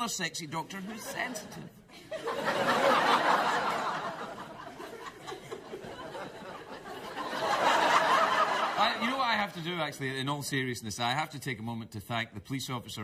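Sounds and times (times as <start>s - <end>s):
studio audience laughing: 0.7s - 9.6s.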